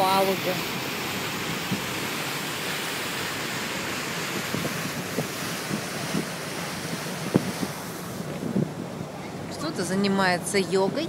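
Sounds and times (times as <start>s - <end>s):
churning water of ship wake: 0.0s - 11.0s
wind on microphone: 4.1s - 10.1s.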